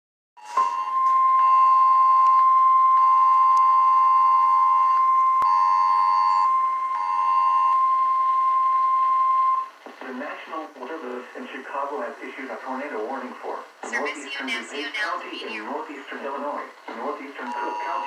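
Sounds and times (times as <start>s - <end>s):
phone alert beeps: 0.4s - 9.8s, 17.4s - 18.0s
steady loud alert tone: 17.5s - 18.0s.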